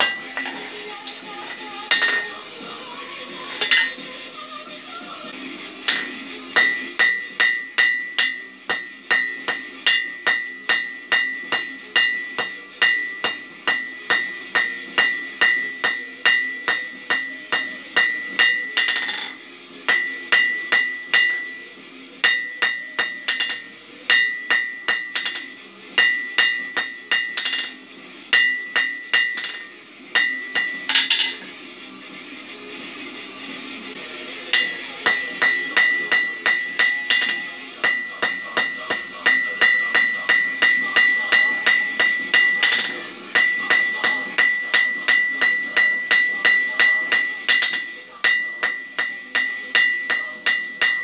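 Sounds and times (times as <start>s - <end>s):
anvil ringing: 0.0s - 0.6s, 1.5s - 2.4s, 3.6s - 4.1s, 5.9s - 31.5s, 34.5s - 51.0s
hammer striking steel on anvil: 0.0s - 2.5s, 3.6s - 4.1s, 5.8s - 31.6s, 34.4s - 51.0s.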